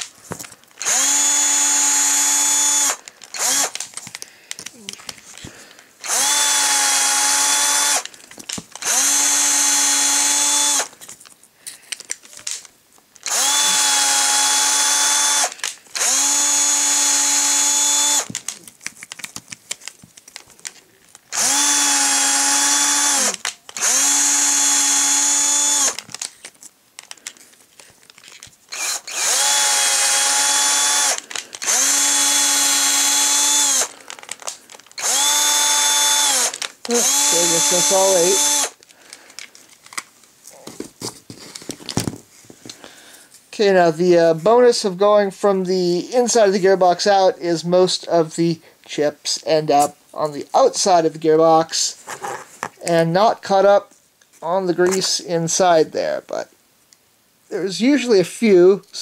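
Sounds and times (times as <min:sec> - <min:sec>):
cordless drill motor whining: 0:00.8 - 0:03.8, 0:06.0 - 0:11.0, 0:13.2 - 0:18.4, 0:21.3 - 0:26.2, 0:28.7 - 0:38.8.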